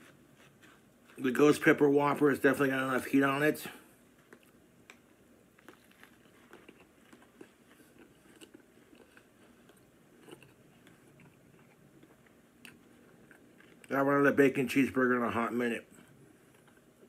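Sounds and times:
man chewing food: 0:00.0 - 0:01.3, 0:03.9 - 0:13.9, 0:15.8 - 0:17.0.

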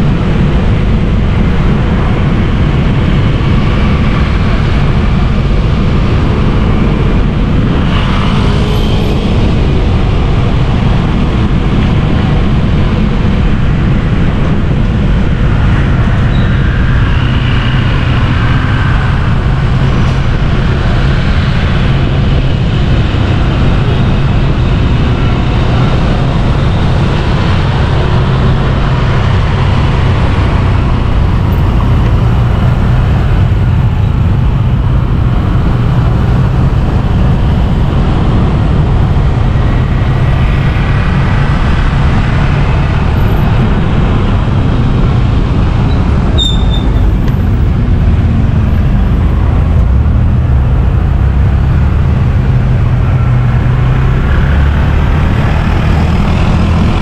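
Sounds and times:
traffic rumble of engines and tyres: 0:00.0 - 0:57.0
brief high whistle-like tone: 0:46.4 - 0:46.9.

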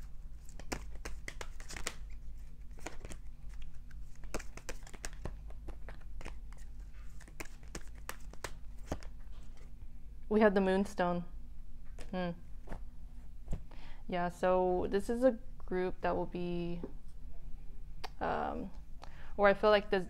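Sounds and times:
steady low hum: 0:00.0 - 0:20.0
cards being shuffled: 0:00.3 - 0:09.7.

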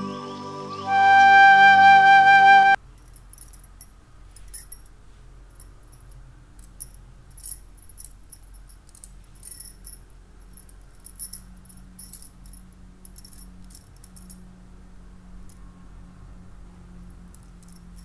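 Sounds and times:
bangles clinking and jingling: 0:02.8 - 0:14.6, 0:17.2 - 0:18.0.

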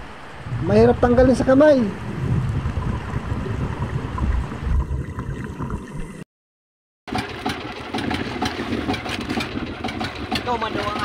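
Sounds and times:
water rumbling against camera housing: 0:02.0 - 0:06.2, 0:07.1 - 0:11.0
boat engine idling: 0:07.1 - 0:11.0.

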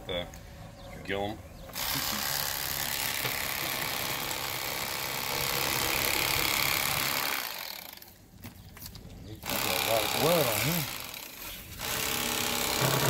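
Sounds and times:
electric knife motor buzzing: 0:11.8 - 0:13.0.

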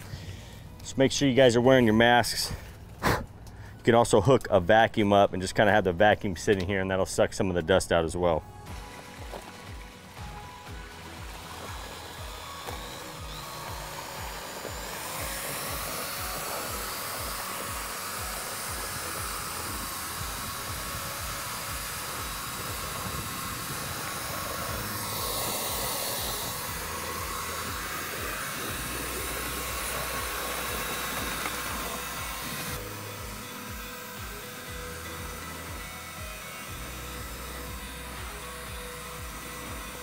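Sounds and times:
drill with paddle mixer whirring: 0:08.5 - 0:40.0.

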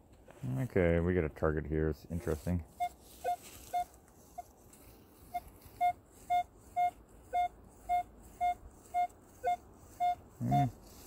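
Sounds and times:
metal detector beeping: 0:02.7 - 0:04.0, 0:05.3 - 0:10.8.

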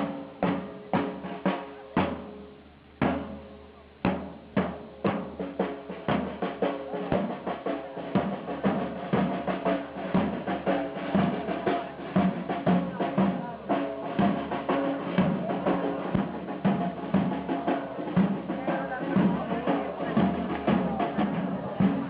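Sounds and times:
marching side drums beating: 0:00.0 - 0:22.0.

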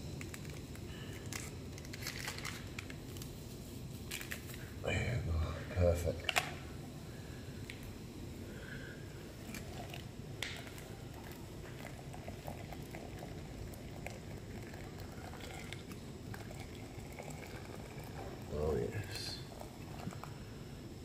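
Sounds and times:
gas stove burner running: 0:00.0 - 0:21.0
water poured into metal mug: 0:10.6 - 0:18.5.

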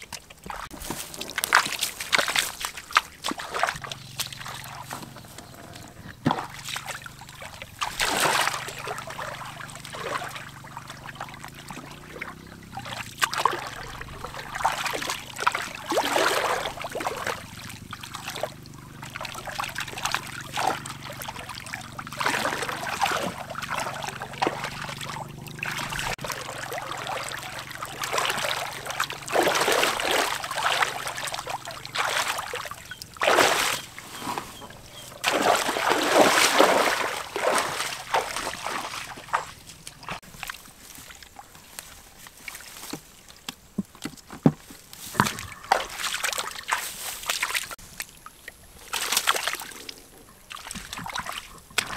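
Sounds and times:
feet wading through water: 0:00.0 - 0:44.0, 0:44.9 - 0:51.9
hands sloshing in shallow water: 0:00.1 - 0:05.3, 0:06.1 - 0:41.5.

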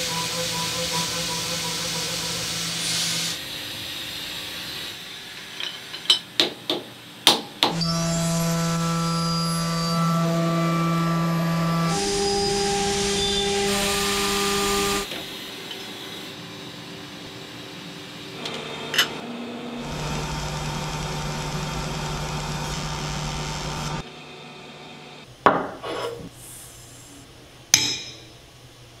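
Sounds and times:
milling machine cutting metal: 0:07.8 - 0:15.1, 0:19.8 - 0:24.0
laser marker humming: 0:19.8 - 0:24.0.

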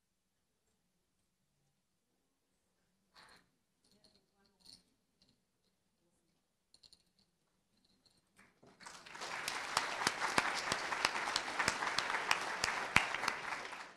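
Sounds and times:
audience applauding: 0:08.8 - 0:13.9.

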